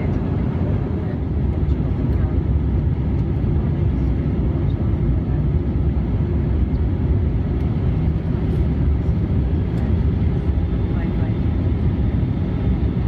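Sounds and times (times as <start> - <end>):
airplane cabin drone: 0.0 - 13.0.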